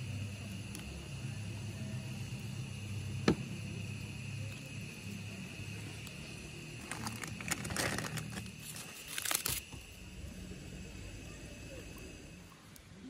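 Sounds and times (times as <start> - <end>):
paper crinkling and ripping: 6.8 - 9.7.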